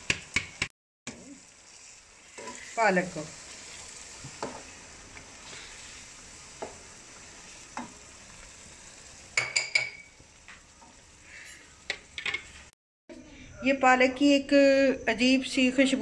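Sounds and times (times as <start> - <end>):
curry sizzling in a pan: 0.0 - 12.8
spoon stirring and scraping pan: 0.1 - 12.7.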